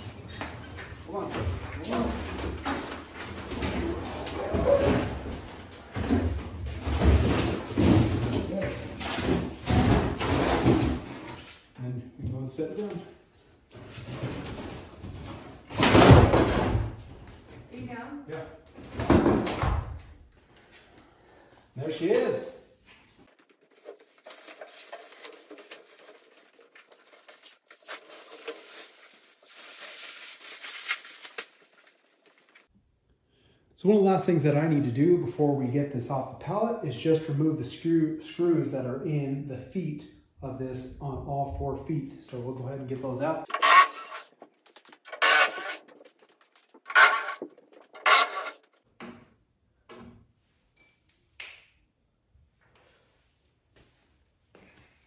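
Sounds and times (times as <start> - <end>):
handling knocks and shuffles: 22.8 - 32.7, 43.0 - 48.8
plastic wrap rustling and crackling: 23.3 - 32.7
cordless drill running: 43.5 - 44.3, 45.2 - 45.8.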